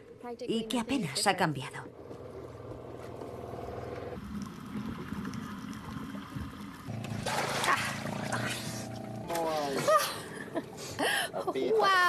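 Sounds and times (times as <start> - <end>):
water splashing loudly: 6.9 - 10.2.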